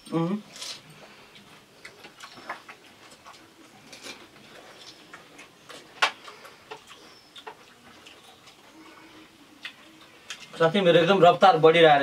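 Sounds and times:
crunching crisp food: 1.8s - 8.8s.

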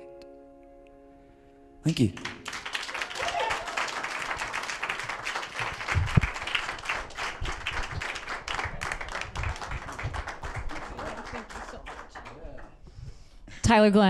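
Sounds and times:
audience applauding: 2.0s - 12.8s.

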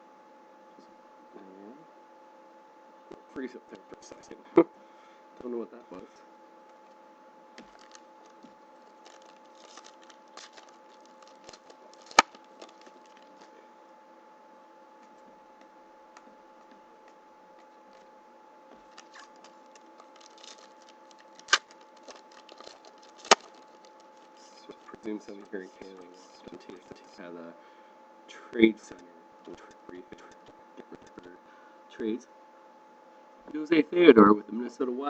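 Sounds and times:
faint steady hum: 0.0s - 35.0s
cards rustling and snapping: 7.6s - 13.5s, 18.7s - 27.0s.

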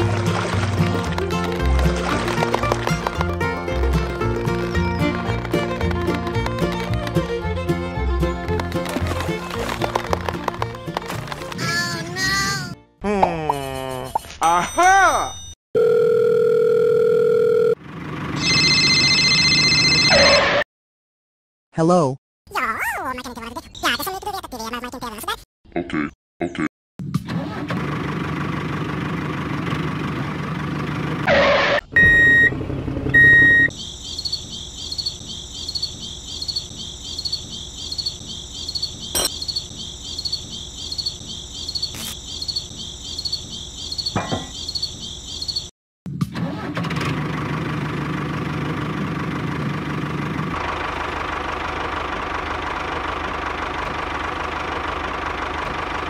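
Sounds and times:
tractor engine running: 0.0s - 12.2s, 17.8s - 19.0s, 27.4s - 44.8s, 46.4s - 56.0s.

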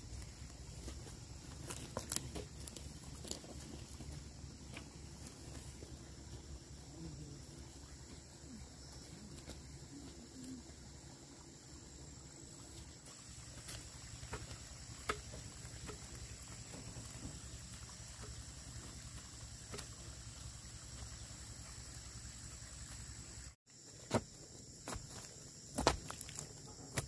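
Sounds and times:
crunch of charred debris: 0.0s - 6.4s, 12.8s - 21.9s, 23.7s - 27.0s
high insect drone: 0.0s - 27.0s
sticks knocking into ground: 13.6s - 17.4s.

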